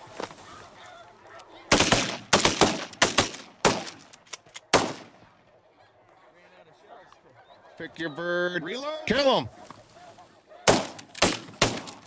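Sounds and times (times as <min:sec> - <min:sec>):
shotgun fire: 0:01.7 - 0:04.0, 0:04.7 - 0:05.2, 0:10.7 - 0:12.0.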